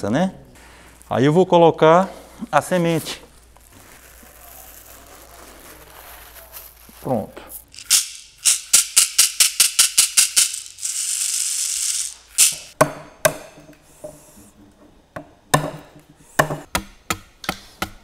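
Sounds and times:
wicker shaker rattling: 5.7s - 12.8s.

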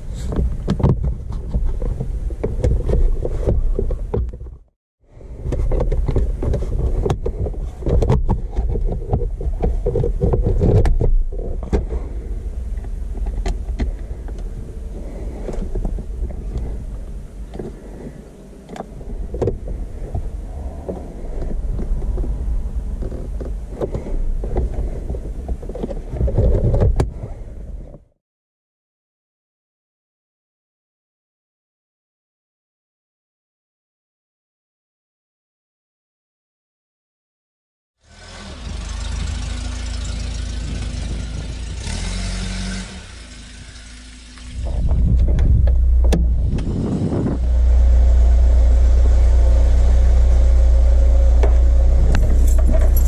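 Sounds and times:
steady low rumble: 0.0s - 28.2s, 44.5s - 53.0s.

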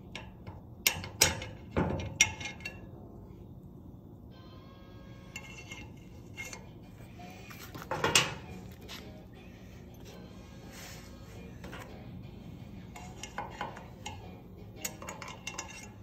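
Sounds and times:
metal scrape: 5.1s - 9.2s, 10.0s - 16.0s
metal parts clinking: 12.9s - 16.0s.

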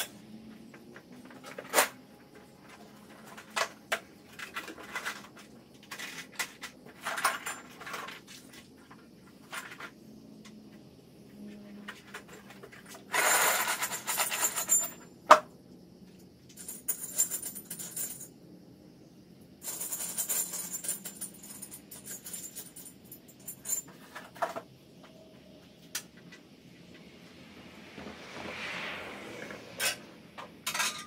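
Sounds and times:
small metal parts jingling: 13.2s - 15.1s, 16.5s - 18.3s, 19.6s - 24.6s.

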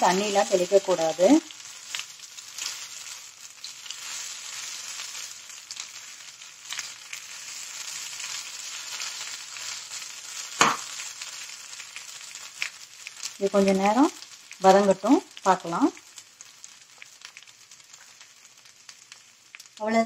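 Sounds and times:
banana slices sizzling in oil: 0.0s - 20.0s
sharp knock: 10.6s - 10.9s.

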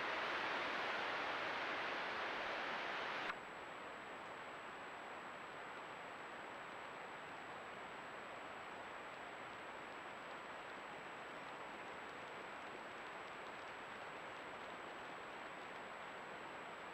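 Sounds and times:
microphone hiss: 0.0s - 16.9s.

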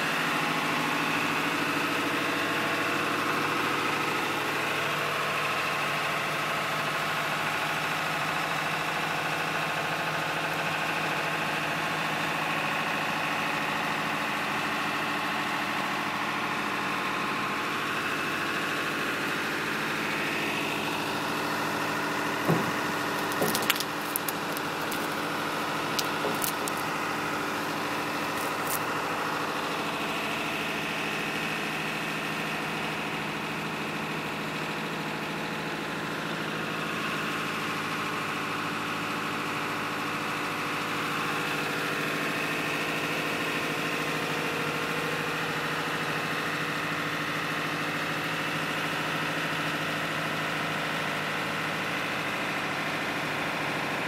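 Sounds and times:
engine idling: 0.0s - 54.0s
short sharp knocks: 22.4s - 24.3s.

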